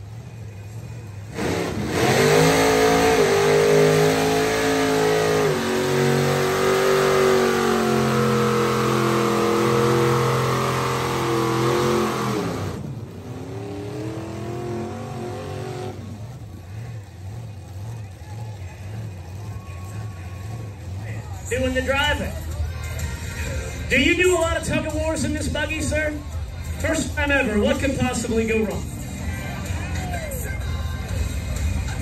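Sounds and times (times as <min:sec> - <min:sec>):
truck engines straining at high revs: 0:00.0 - 0:32.0
softer engine revving: 0:00.6 - 0:23.9.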